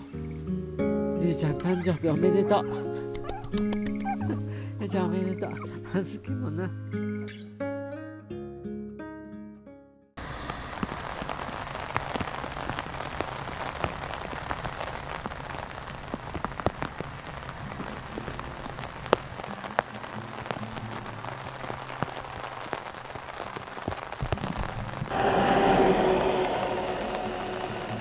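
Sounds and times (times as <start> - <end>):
raindrops ticking on a surface: 10.2 - 25.1
steady rain falling: 10.2 - 28.0.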